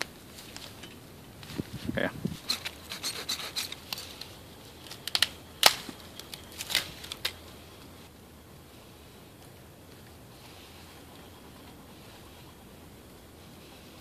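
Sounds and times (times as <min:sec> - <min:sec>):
dry wood snapping and clicking: 0:02.4 - 0:07.4.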